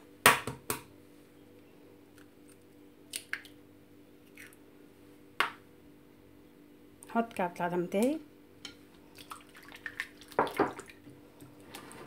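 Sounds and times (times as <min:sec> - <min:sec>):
egg cracking: 0:02.2 - 0:04.6.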